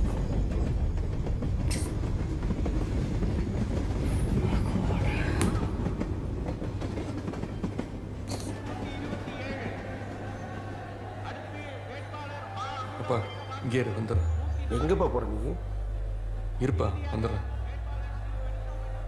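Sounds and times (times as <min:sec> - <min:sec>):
low rumbling drone: 0:14.2 - 0:19.0.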